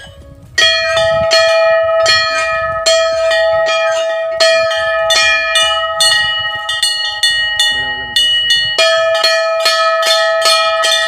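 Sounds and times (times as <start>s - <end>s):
higher-pitched bell: 0.0s - 11.0s
large temple bells ringing: 0.0s - 11.0s.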